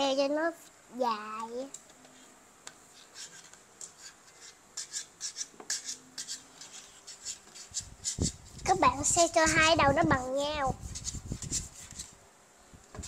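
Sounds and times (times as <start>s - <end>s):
fingers rubbing craft material: 2.9s - 12.2s.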